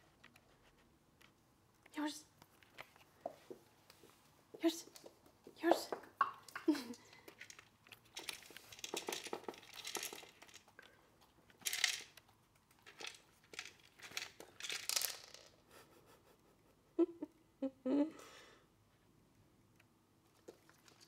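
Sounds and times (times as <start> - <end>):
kibble clicking against plastic bowl: 6.2 - 10.7
dog crunching kibble: 7.2 - 15.2.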